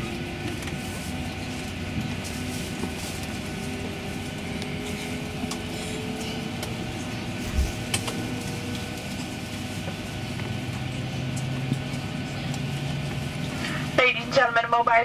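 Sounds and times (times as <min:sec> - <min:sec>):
aircraft cabin hum: 0:00.0 - 0:15.0.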